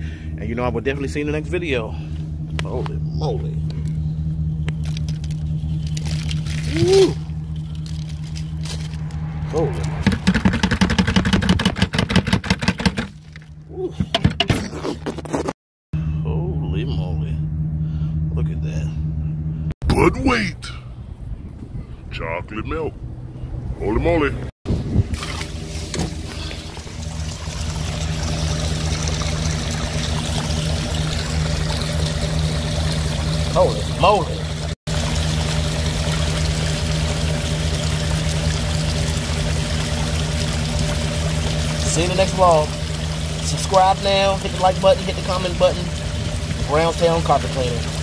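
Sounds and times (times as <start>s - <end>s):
steady low hum: 0.0s - 12.0s, 16.0s - 48.0s
water gushing and splashing: 5.8s - 13.6s, 25.0s - 48.0s.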